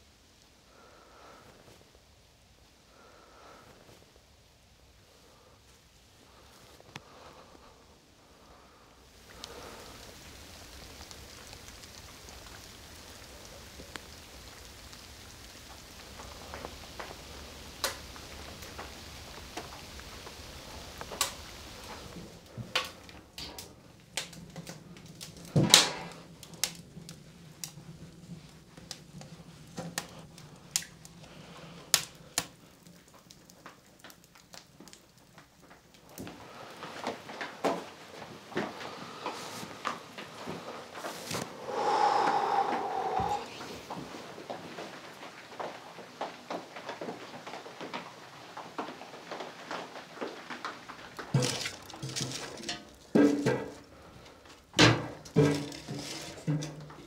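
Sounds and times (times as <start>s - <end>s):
soft steady hiss: 0.0s - 57.0s
wood crackling in a stove: 0.0s - 57.0s.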